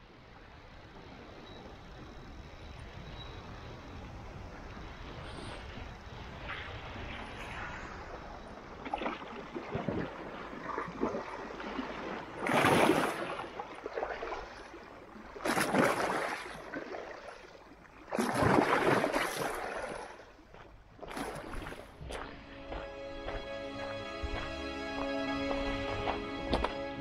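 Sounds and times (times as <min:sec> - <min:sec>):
sea waves splashing on rocks: 0:08.6 - 0:20.3.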